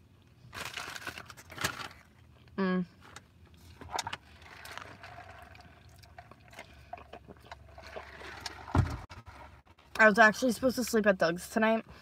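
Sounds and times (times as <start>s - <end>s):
soft wet chewing: 4.4s - 8.3s
dull thump: 8.7s - 9.2s.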